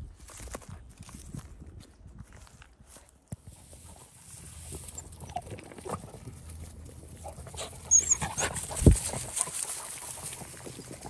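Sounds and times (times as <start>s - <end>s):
dogs moving through grass: 2.9s - 11.0s
dogs panting: 4.9s - 11.0s.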